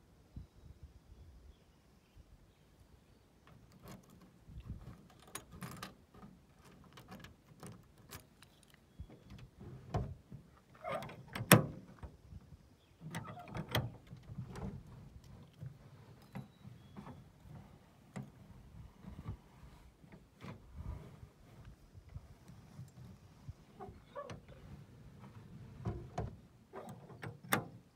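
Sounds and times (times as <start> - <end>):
small metallic clicks and rattles: 3.5 - 10.1.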